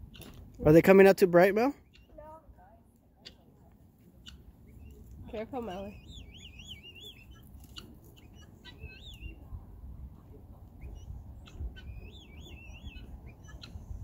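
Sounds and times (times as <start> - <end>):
songbird warbling: 4.2 - 9.5, 10.8 - 13.9.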